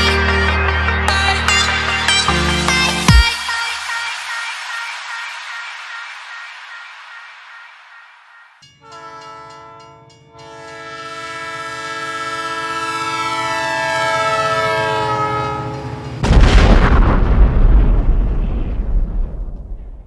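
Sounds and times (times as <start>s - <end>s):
train horn blowing: 8.8s - 16.1s
loud crash: 16.2s - 20.0s.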